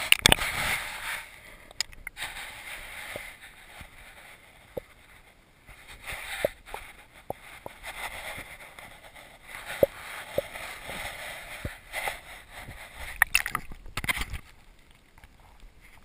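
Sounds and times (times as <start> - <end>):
sharp clicks underwater: 0.0 - 0.5, 1.7 - 2.2, 13.1 - 15.7
muffled underwater hiss: 0.0 - 16.0.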